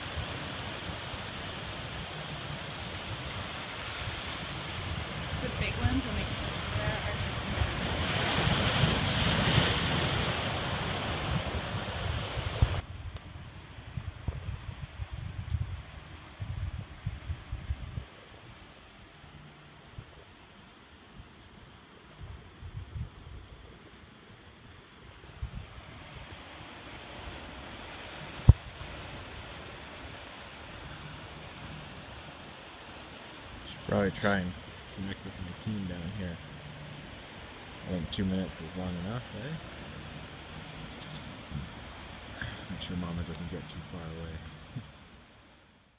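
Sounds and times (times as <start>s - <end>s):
surf breaking over rocks: 0.0s - 12.9s, 25.6s - 45.0s
wind buffeting microphone: 0.0s - 45.2s
sharp low thump: 28.4s - 28.7s.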